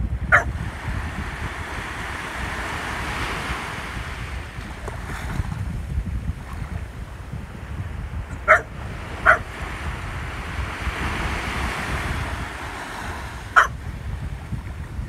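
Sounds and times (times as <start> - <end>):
wind rumble on microphone: 0.0 - 15.0
small waves washing up: 0.1 - 15.0
dog barking: 0.3 - 0.5, 8.4 - 9.5, 13.6 - 13.8.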